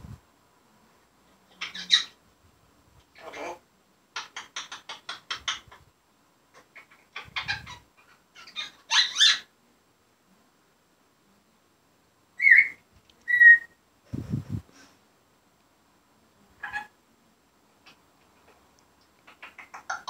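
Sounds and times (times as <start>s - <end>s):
parrot chattering: 1.5s - 2.2s, 3.1s - 3.6s, 4.2s - 5.8s, 6.5s - 9.5s, 16.6s - 16.9s, 19.2s - 20.0s
parrot whistling: 12.4s - 13.8s.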